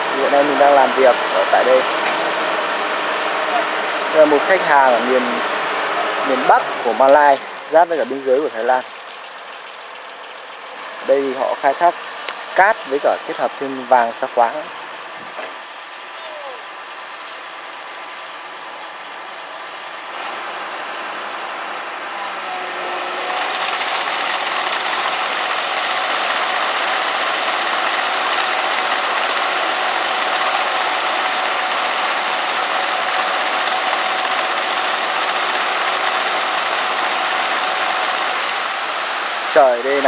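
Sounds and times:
water gushing and splashing: 4.3 - 13.3, 23.0 - 40.0
machine running: 20.3 - 40.0.

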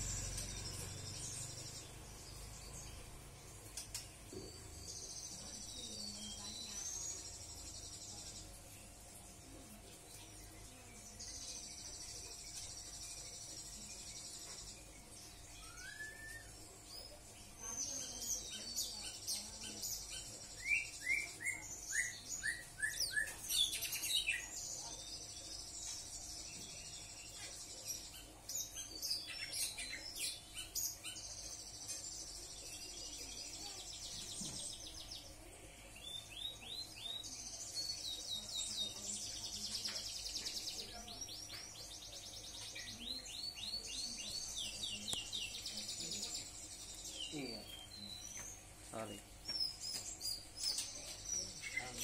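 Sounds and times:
birds singing buzzy trills: 0.0 - 52.0.

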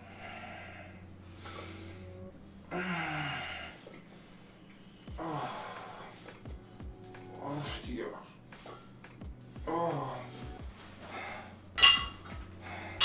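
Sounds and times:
man's strained exhale and groan: 2.7 - 4.0, 5.1 - 6.3.

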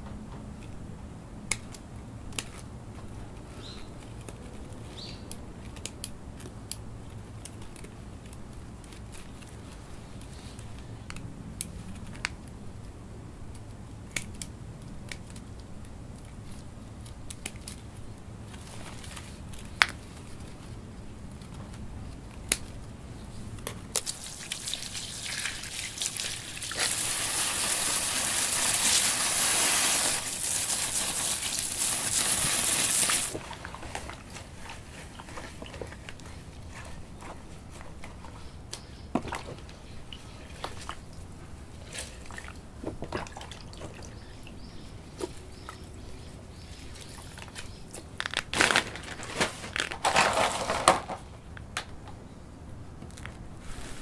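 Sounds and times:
hands rustling in potting mix: 18.4 - 50.7, 53.2 - 54.0
water splashing on stone paving: 24.0 - 33.8.

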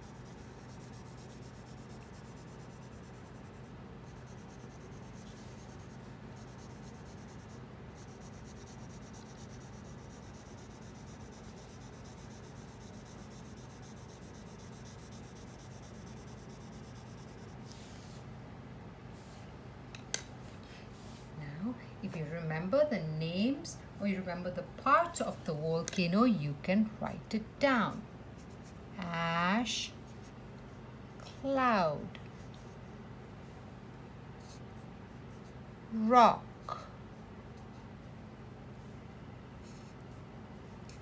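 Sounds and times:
pencil scratching on paper: 0.0 - 18.0
low steady hum: 0.0 - 41.0.

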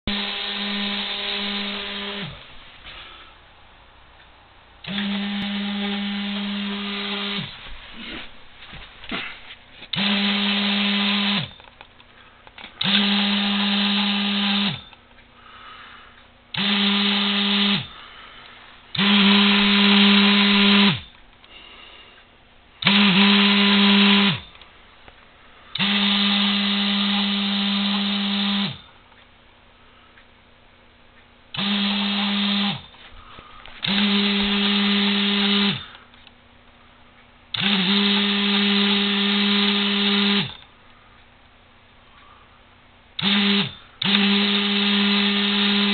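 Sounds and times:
small electric motor whining: 0.1 - 2.4, 4.8 - 8.1, 9.9 - 11.6, 12.8 - 15.0, 16.5 - 18.0, 18.9 - 21.1, 22.8 - 24.6, 25.8 - 28.9, 31.6 - 32.9, 33.8 - 36.0, 37.6 - 40.7, 43.2 - 45.9.

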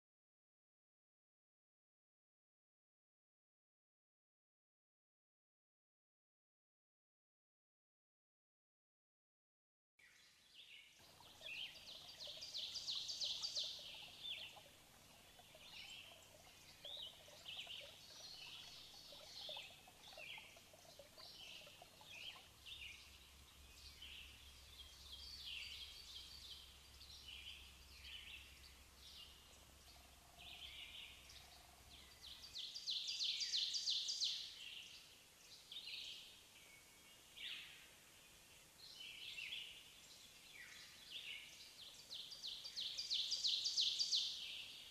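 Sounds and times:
small birds chirping: 10.0 - 44.9.

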